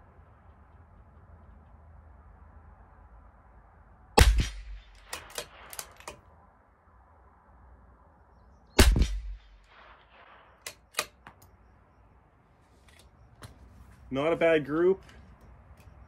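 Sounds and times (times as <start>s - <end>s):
rifle shot: 4.2s - 6.2s, 8.8s - 11.2s
rifle bolt clicks: 4.4s - 6.2s, 10.6s - 11.5s.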